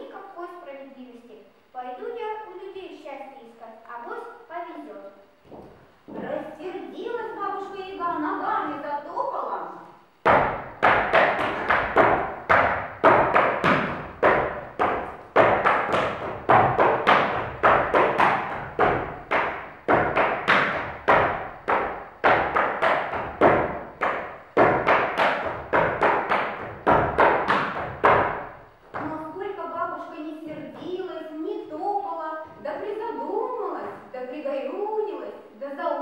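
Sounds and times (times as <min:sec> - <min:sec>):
hard shoes tapping on stage: 0:05.4 - 0:06.4, 0:10.2 - 0:29.3.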